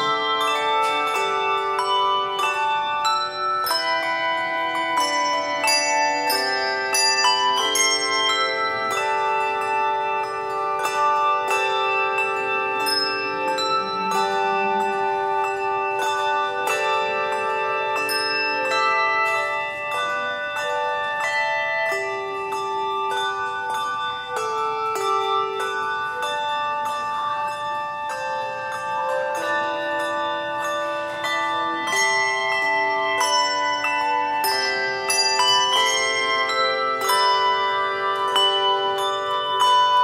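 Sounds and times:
handbell choir playing: 0:00.0 - 0:40.0.

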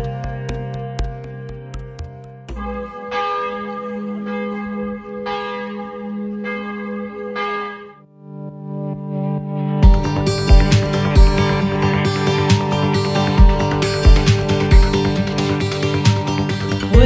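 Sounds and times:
church bells ringing: 0:02.6 - 0:08.0.

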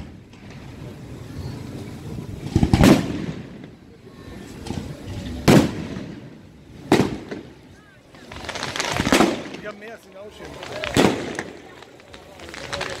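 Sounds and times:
firework shell bang: 0:02.4 - 0:03.8, 0:04.6 - 0:07.6.

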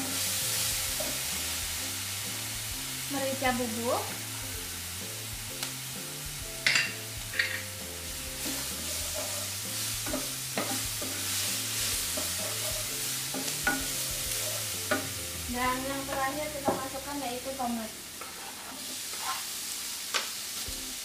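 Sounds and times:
paste sizzling in oil: 0:00.0 - 0:21.0
spatula scraping and knocking pan: 0:06.6 - 0:17.0, 0:18.2 - 0:19.4.

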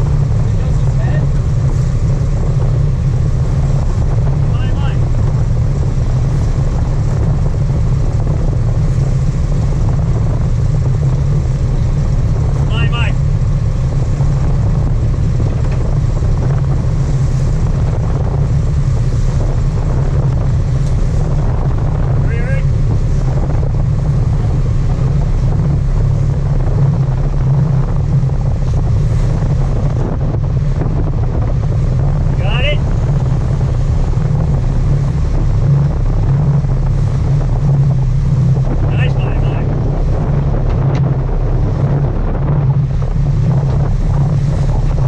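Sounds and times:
boat engine low drone: 0:00.0 - 0:45.0
wind buffeting microphone: 0:00.0 - 0:45.0.

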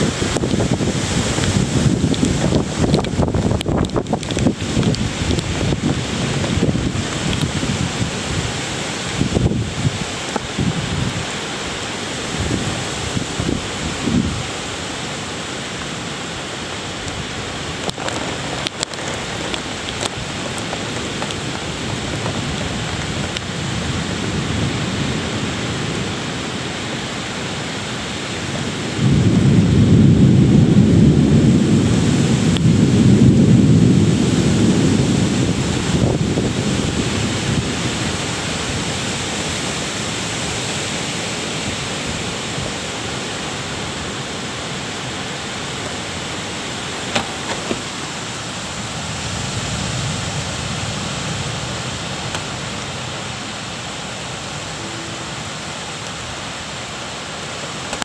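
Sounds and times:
thunder rumbling: 0:00.0 - 0:11.4, 0:28.5 - 0:40.6
rain hissing: 0:00.0 - 0:58.0.

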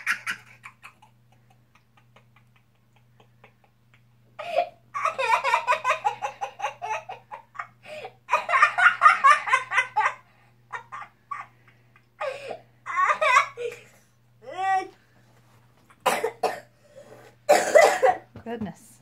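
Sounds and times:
boy laughing: 0:00.0 - 0:14.9.

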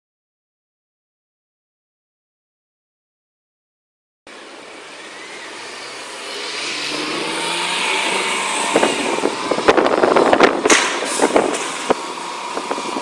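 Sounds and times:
bus engine running: 0:04.3 - 0:13.0
rushing noise: 0:04.3 - 0:13.0
sharp crackling knocks: 0:09.7 - 0:12.0.

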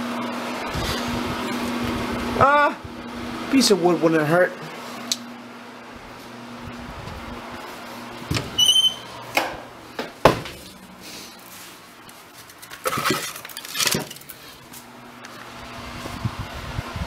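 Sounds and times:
short high squeak: 0:08.5 - 0:09.2
logs clattering against metal: 0:12.4 - 0:14.6.

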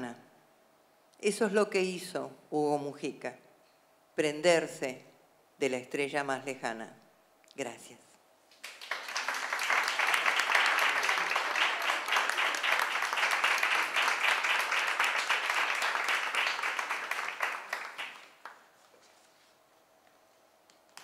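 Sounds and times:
audience applauding: 0:08.6 - 0:18.7.

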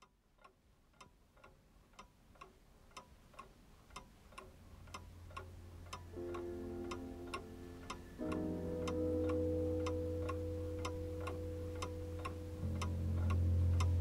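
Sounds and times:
clock ticking: 0:00.0 - 0:14.0
held musical notes: 0:04.9 - 0:14.0.

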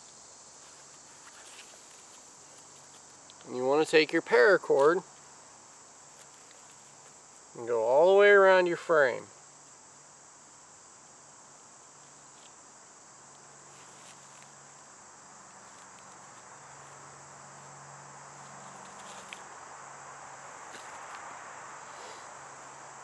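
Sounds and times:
insects chorus: 0:00.0 - 0:23.0
cord rustling: 0:18.4 - 0:19.6.

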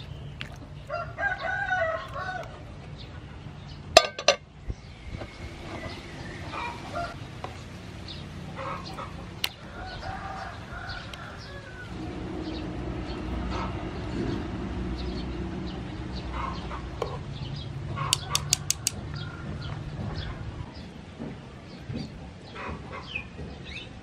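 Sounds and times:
utensils clinking against pan: 0:04.0 - 0:04.4
chickens clucking: 0:05.6 - 0:12.7, 0:16.1 - 0:21.3, 0:21.9 - 0:23.6.

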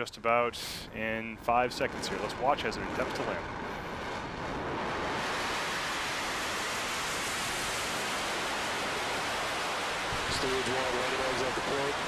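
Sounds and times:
rocket engine rushing roar: 0:01.2 - 0:12.0.

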